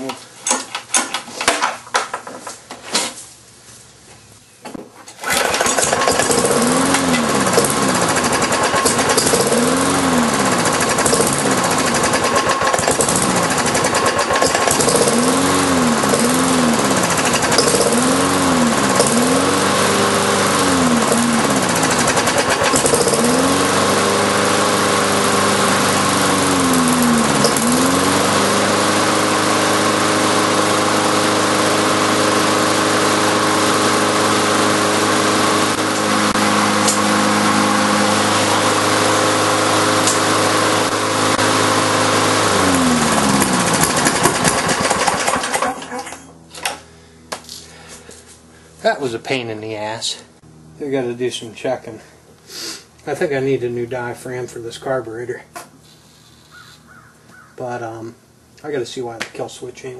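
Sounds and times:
lawn mower engine running: 0:05.1 - 0:49.4, 0:50.4 - 0:51.1.

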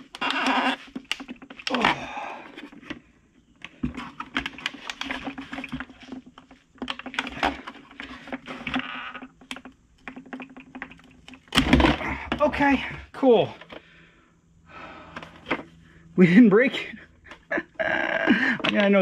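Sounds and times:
plastic housing crackling: 0:00.0 - 0:12.5.

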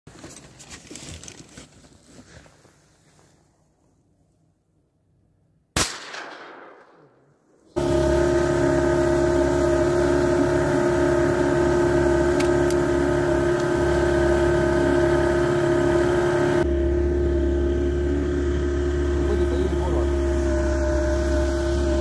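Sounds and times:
outboard motor running: 0:07.8 - 0:22.0.

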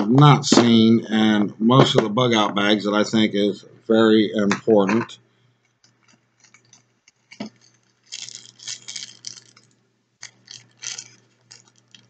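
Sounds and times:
plastic bag crinkling: 0:05.8 - 0:12.0.

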